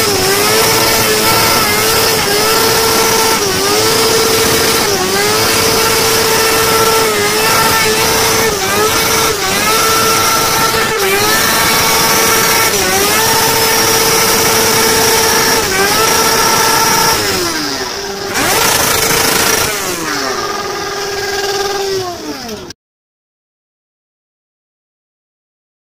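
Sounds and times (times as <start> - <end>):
motorcycle engine revving: 0.0 - 22.8.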